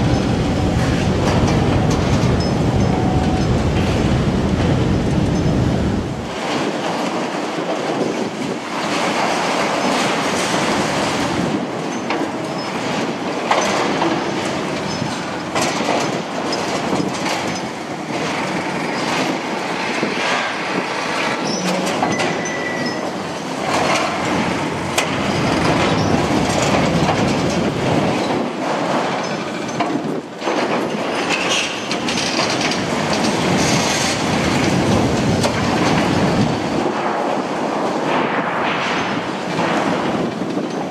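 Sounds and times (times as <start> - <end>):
high squeal: 21.4 - 23.2.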